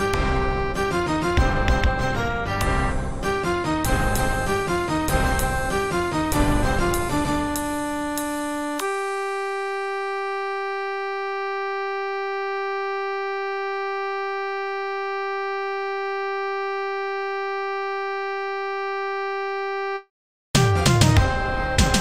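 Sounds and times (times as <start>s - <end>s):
synthesized buzzy note: 3.9s - 20.1s.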